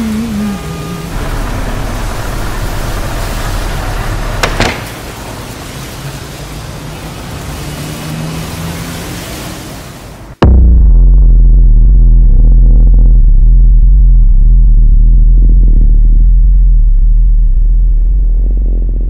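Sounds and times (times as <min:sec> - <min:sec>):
low rumble: 0:00.0 - 0:06.0, 0:10.4 - 0:19.0
rain hissing: 0:00.0 - 0:10.4.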